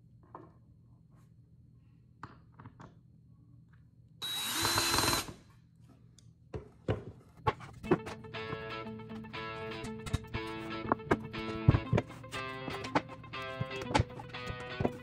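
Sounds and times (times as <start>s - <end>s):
cordless drill driving screw: 4.2s - 5.4s.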